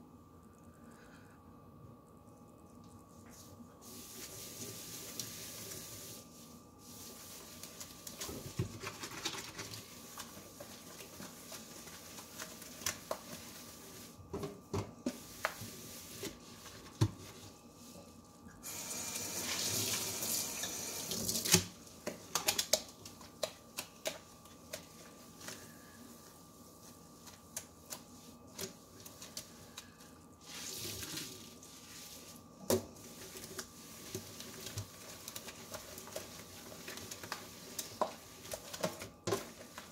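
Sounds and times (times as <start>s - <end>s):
sponge scrubbing steel sink: 3.4s - 14.2s, 30.4s - 39.9s
faucet running water: 18.6s - 21.6s.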